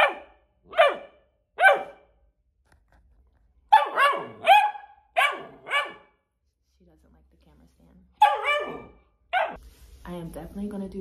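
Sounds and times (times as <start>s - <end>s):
puppy barking: 0.0s - 2.2s, 3.7s - 6.2s, 8.2s - 9.6s.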